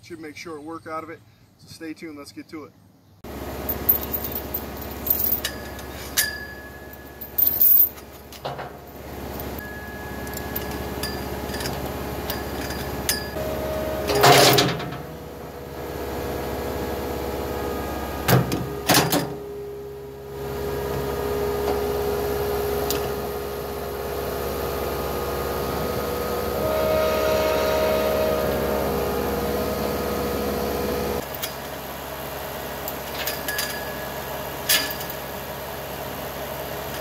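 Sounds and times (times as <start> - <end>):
skid steer engine under load: 3.3 - 37.0
loud chain clanks: 3.7 - 9.6, 10.2 - 13.4, 32.9 - 35.2
steel chain clinking and rattling: 3.7 - 9.6, 10.2 - 13.4.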